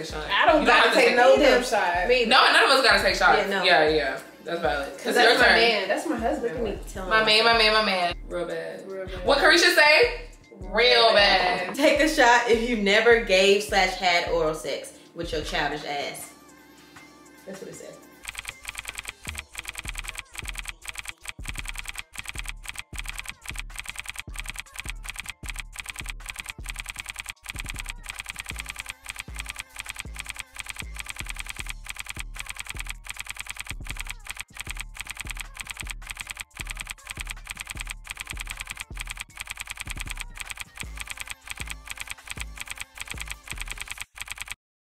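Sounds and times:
keyboard typing: 0:18.2 - 0:44.6.

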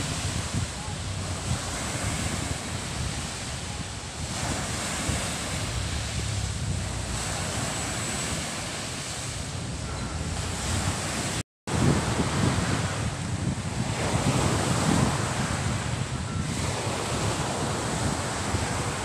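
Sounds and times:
waves washing up beach: 0:00.0 - 0:19.0
wind buffeting microphone: 0:00.0 - 0:19.0.

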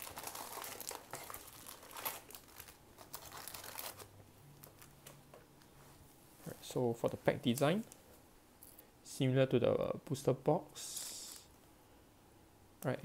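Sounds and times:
foil packs crinkling: 0:00.0 - 0:05.0.

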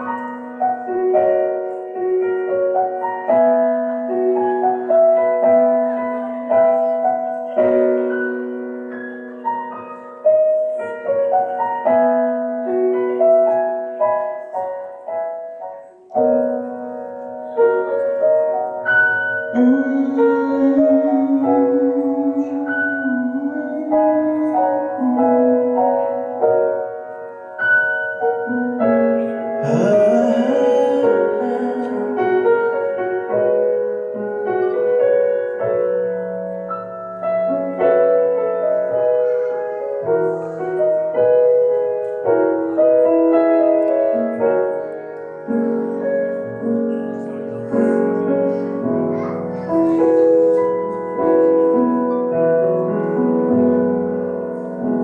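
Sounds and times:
piano music with held notes: 0:00.0 - 0:55.0.

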